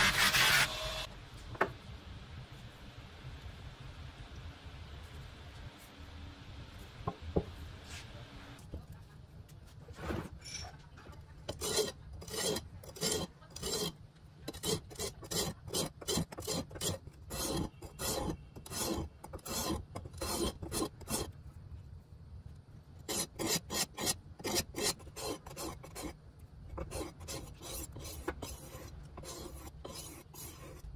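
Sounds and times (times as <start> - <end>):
blade scraping on sharpening stone: 11.5 - 21.3, 23.1 - 26.2, 26.8 - 30.9.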